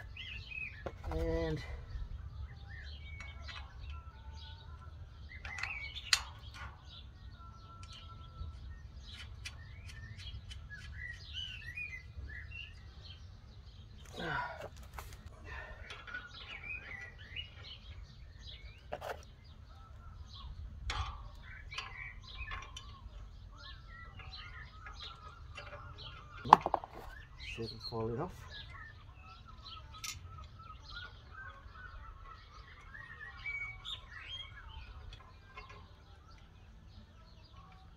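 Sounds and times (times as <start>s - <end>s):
small birds chirping: 0.0s - 37.9s
metal parts knocking: 20.3s - 27.4s.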